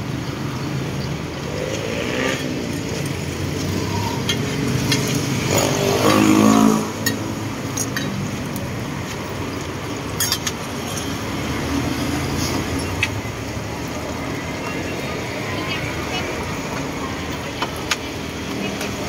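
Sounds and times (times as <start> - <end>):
frying sizzle on griddle: 0.2 - 19.0
vehicle engine passing: 1.3 - 8.4.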